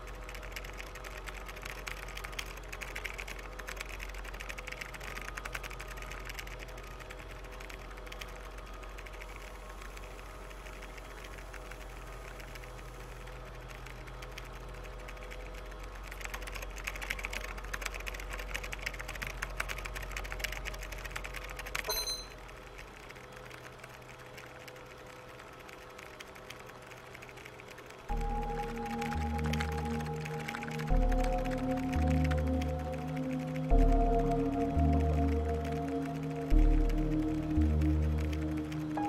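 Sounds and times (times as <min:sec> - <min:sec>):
rapid tapping on a keypad: 0:00.0 - 0:12.8, 0:13.5 - 0:39.0
low electrical hum: 0:00.0 - 0:39.0
short high electronic beep: 0:21.9 - 0:22.4.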